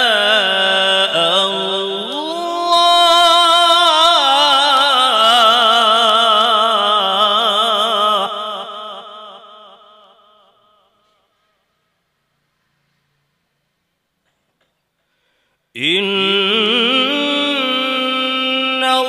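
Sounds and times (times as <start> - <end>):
man reciting through a microphone: 0.0 - 11.4, 15.7 - 19.0.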